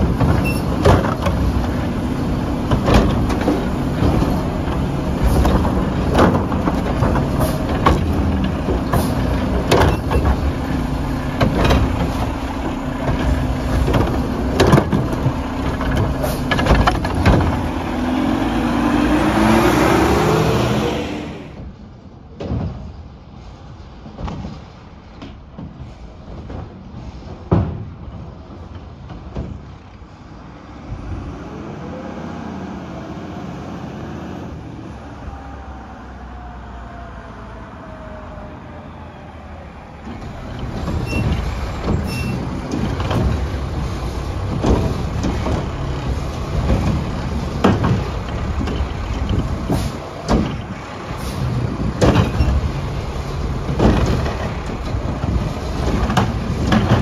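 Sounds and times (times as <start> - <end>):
clanks and bangs of bin dumping: 0.0 - 19.5, 40.1 - 57.0
garbage truck engine revving: 0.0 - 21.7, 29.5 - 57.0.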